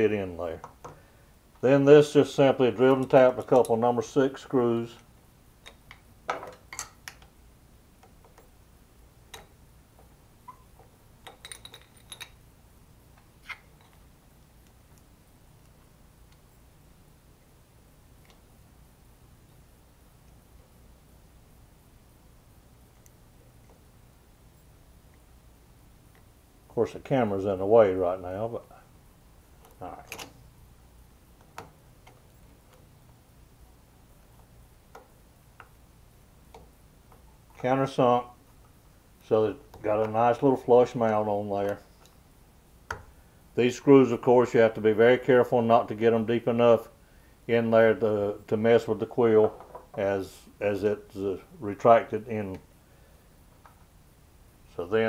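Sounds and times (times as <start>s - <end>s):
small metal parts clicking: 11.2s - 12.4s.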